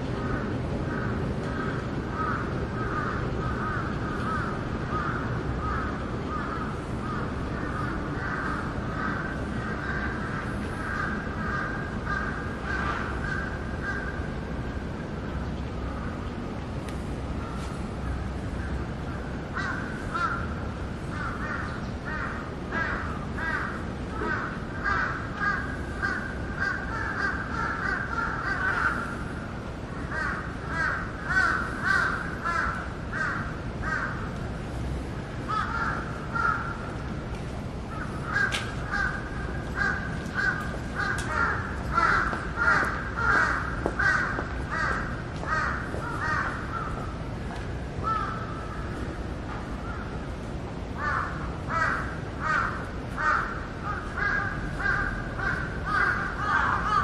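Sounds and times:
steady low rumble: 0.0 - 57.0
crows cawing: 0.2 - 14.6, 17.4 - 37.1, 37.8 - 50.2, 51.0 - 57.0.

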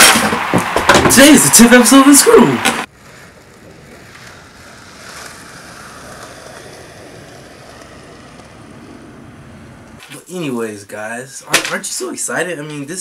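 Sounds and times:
skateboard wheels rolling: 0.0 - 10.2.

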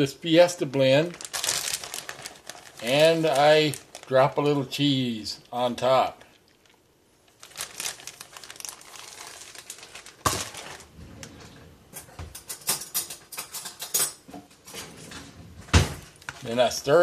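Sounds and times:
dishes and utensils clinking: 12.0 - 14.3.

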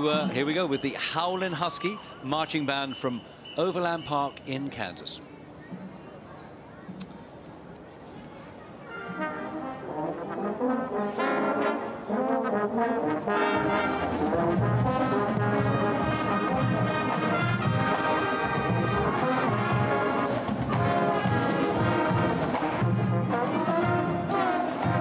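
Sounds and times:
marching band playing: 0.0 - 0.9, 9.0 - 25.0
low brass notes: 8.9 - 25.0.

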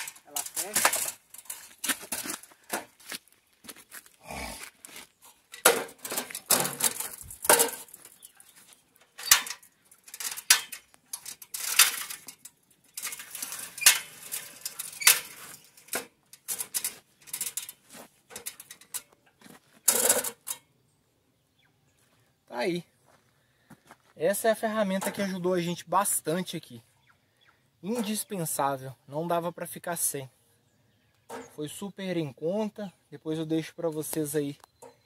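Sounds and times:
metal ladder clanking: 0.0 - 2.9, 5.5 - 8.3, 9.0 - 19.1, 19.9 - 20.6.

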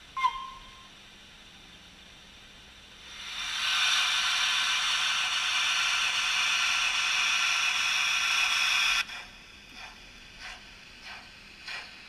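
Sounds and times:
steam hiss through small speaker: 2.8 - 12.0.

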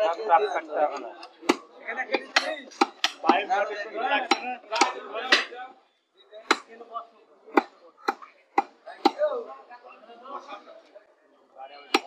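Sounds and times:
voices talking: 0.0 - 12.0
cleaver chopping meat on wood: 1.4 - 1.7, 2.3 - 3.4, 4.2 - 5.5, 6.5 - 6.7, 7.5 - 9.2.

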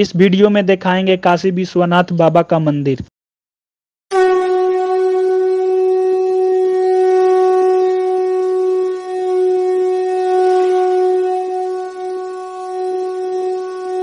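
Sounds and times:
conch shell blown: 4.1 - 14.0.

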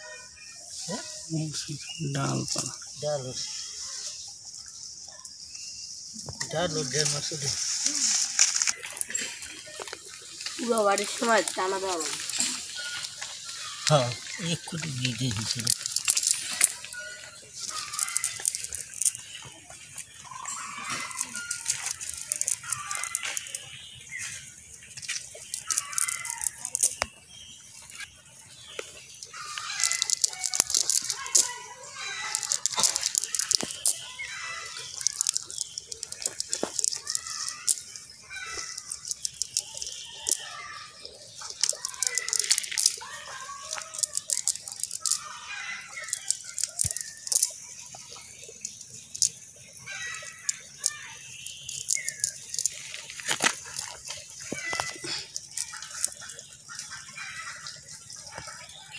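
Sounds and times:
net sinkers clinking and rattling: 6.5 - 58.9
net mesh rustling: 29.1 - 33.9.

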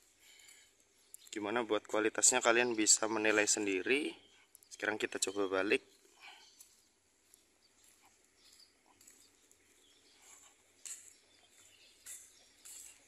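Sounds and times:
faint outdoor ambience: 0.0 - 13.0
high bird chirps: 2.6 - 13.0.

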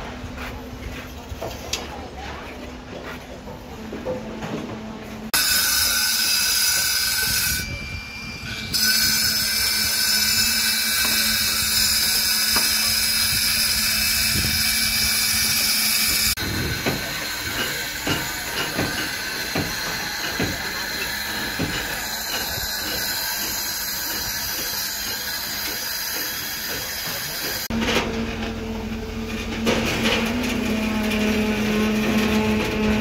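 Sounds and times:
angle grinder cutting concrete: 8.7 - 27.7.

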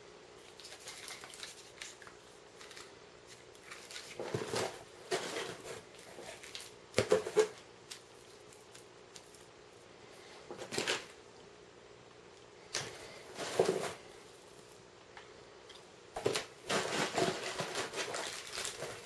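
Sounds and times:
cardboard box and parts rustling: 2.6 - 7.6, 12.8 - 14.6, 16.2 - 19.0.

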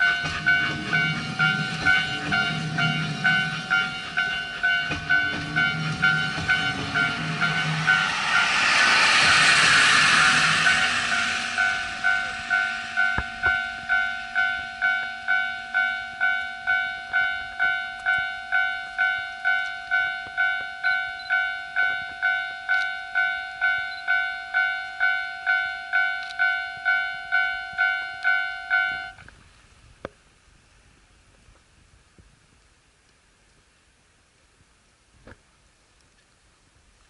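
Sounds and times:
steam train passing: 0.0 - 29.2
level crossing bell ringing: 12.0 - 29.2.

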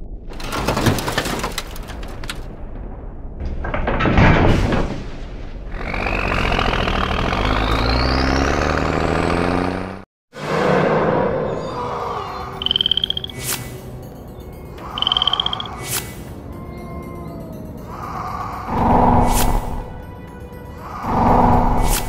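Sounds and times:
truck engine revving: 5.7 - 10.7.

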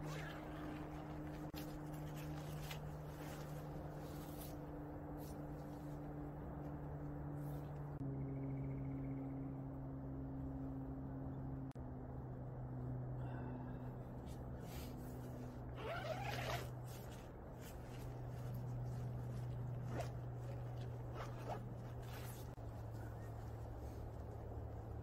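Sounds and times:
rustling: 0.0 - 6.1, 14.6 - 25.0
steady low hum: 0.0 - 25.0
tent zipper pulled open: 15.8 - 17.2, 18.9 - 22.6.

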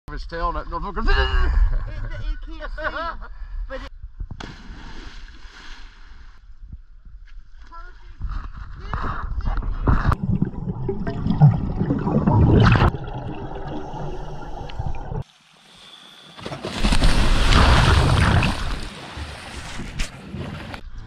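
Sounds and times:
underwater air bubbling: 9.0 - 15.2
loud water splashing: 16.6 - 19.8.

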